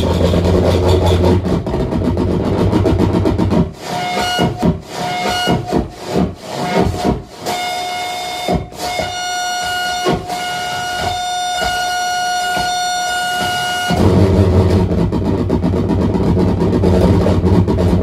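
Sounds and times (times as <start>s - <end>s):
saxophone feedback tone: 3.9s - 5.8s, 6.6s - 14.0s.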